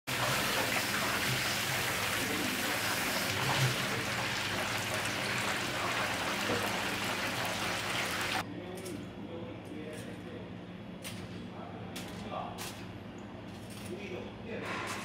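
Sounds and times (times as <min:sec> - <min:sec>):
deep-frying sizzle in hot oil: 0:00.1 - 0:08.4.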